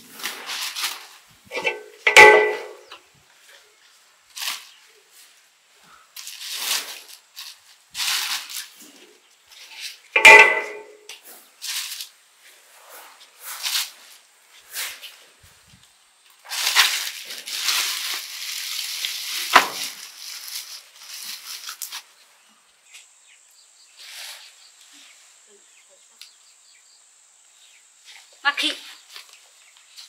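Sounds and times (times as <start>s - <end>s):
metal bowl clanking: 1.5s - 2.9s, 10.2s - 11.1s
plastic bag crinkling: 16.5s - 22.1s.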